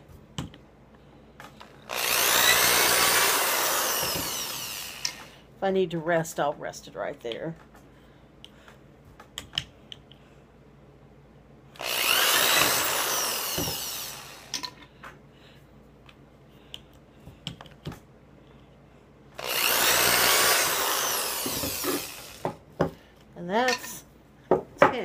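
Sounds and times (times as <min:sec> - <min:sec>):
hand drill whining through plastic: 0:01.5 - 0:05.4, 0:11.8 - 0:14.7, 0:19.4 - 0:22.5.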